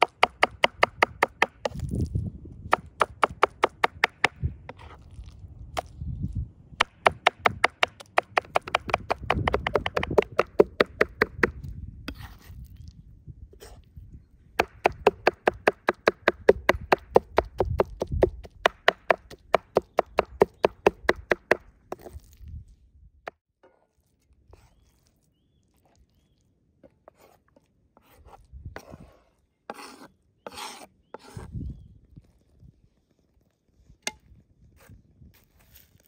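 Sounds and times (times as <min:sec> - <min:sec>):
knife chopping on wooden board: 0:00.0 - 0:01.8, 0:02.7 - 0:04.4, 0:06.8 - 0:12.3, 0:14.6 - 0:22.1
knocks: 0:06.8 - 0:11.4.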